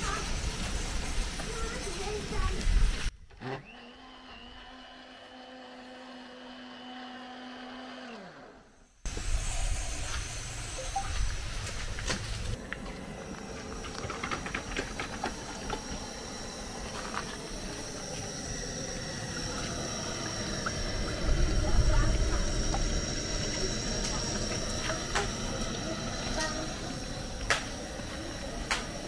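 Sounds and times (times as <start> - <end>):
blender motor running: 3.4 - 29.0
faint high whine: 8.6 - 29.0.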